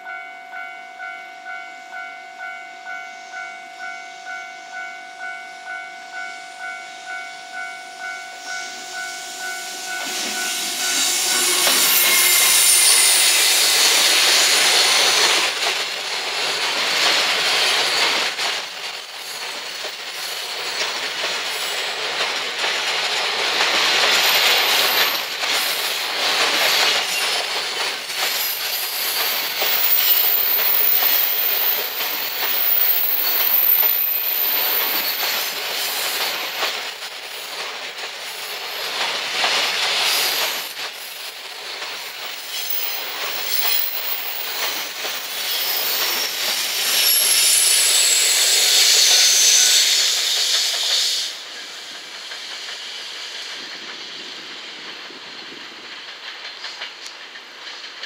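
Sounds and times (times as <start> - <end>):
high-pitched whine: 6.8 - 14.5
train wheels clattering on rails: 8.0 - 58.0.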